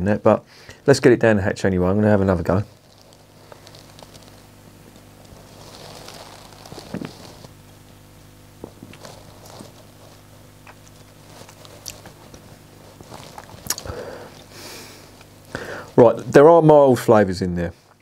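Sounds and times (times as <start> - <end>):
lip smacks and swallowing: 10.6 - 11.0, 13.3 - 14.5.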